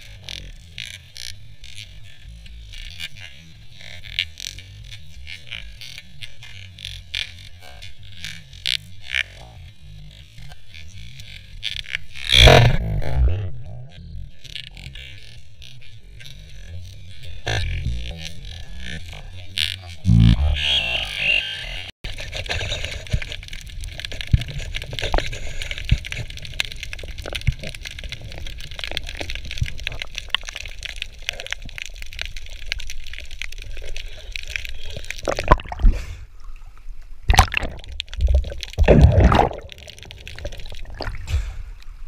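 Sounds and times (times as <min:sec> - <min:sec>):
small clicks and crackles: 0:00.0 - 0:12.8, 0:13.6 - 0:20.0, 0:22.0 - 0:38.9, 0:39.6 - 0:42.0
underwater low rumble: 0:22.1 - 0:42.0
water splashing: 0:23.7 - 0:42.0.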